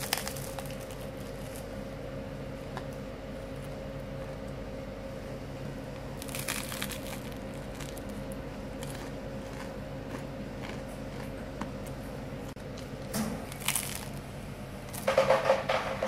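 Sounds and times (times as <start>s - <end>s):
crisp bread crunching: 0.0s - 1.8s, 6.0s - 15.3s
steady low hum: 0.0s - 16.0s
chewing clicks: 8.8s - 12.0s.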